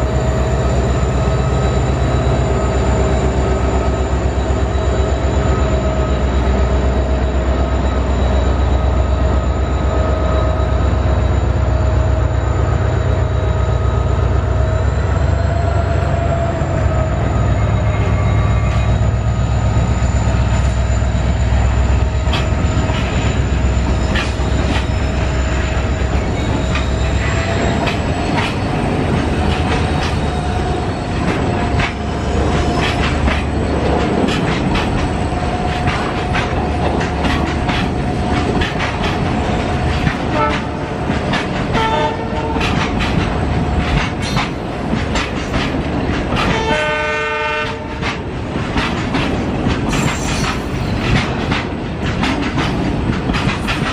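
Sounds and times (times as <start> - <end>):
locomotive rumbling: 0.0 - 53.9
train wheels clacking: 17.3 - 53.9
train horn: 40.3 - 41.0, 41.7 - 42.8, 46.4 - 48.1.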